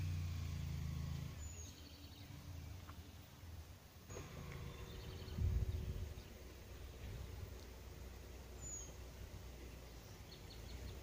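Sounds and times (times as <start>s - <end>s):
faint bird chirps: 1.3s - 3.4s, 4.1s - 7.5s, 8.4s - 11.0s
wind rumbling on microphone: 4.2s - 8.1s.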